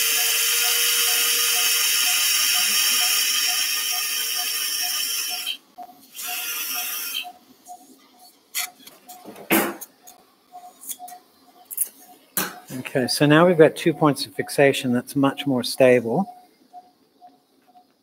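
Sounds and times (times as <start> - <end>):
power drill whining: 0.0 - 7.3
faint steady beeping: 0.0 - 8.4, 9.9 - 18.0.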